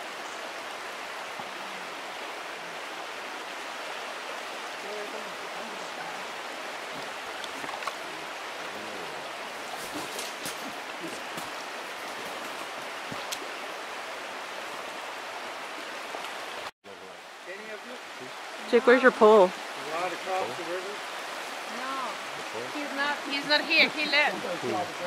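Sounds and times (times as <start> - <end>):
water rushing over rocks: 0.0 - 25.0
faint sharp splashes: 9.5 - 13.6.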